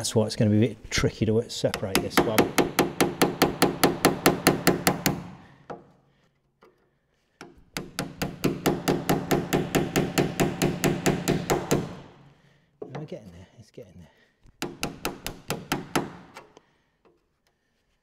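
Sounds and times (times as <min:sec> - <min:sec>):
hammer striking chisel on metal: 0:01.7 - 0:05.8, 0:07.4 - 0:12.2, 0:14.6 - 0:16.4.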